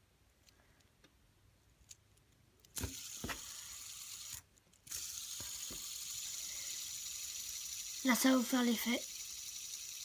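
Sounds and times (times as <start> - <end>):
fidget spinner whirring: 2.6 - 10.0.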